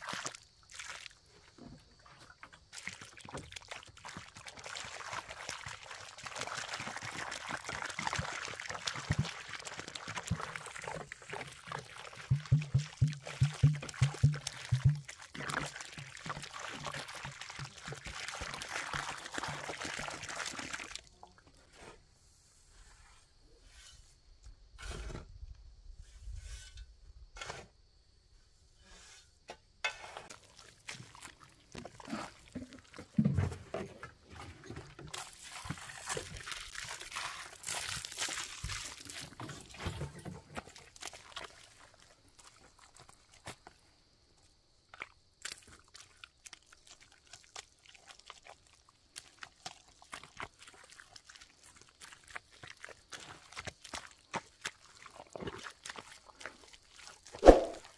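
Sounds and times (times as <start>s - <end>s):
feet squelching in mud: 0.0s - 1.2s, 2.6s - 21.0s, 30.2s - 33.1s, 35.1s - 39.8s, 40.5s - 43.7s, 44.9s - 57.9s
water pouring onto soil: 0.0s - 21.4s, 30.1s - 33.5s, 34.2s - 43.6s, 44.9s - 57.9s
shovel scraping dry earth: 22.6s - 24.2s, 24.8s - 25.4s, 26.0s - 27.8s, 28.8s - 31.1s, 35.1s - 36.4s, 37.0s - 40.2s, 57.4s - 57.9s.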